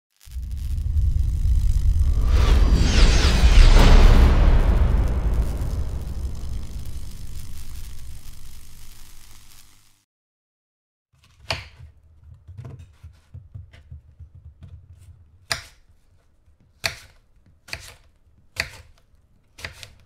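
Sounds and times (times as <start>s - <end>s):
knife cutting apples on board: 11.2s - 20.0s.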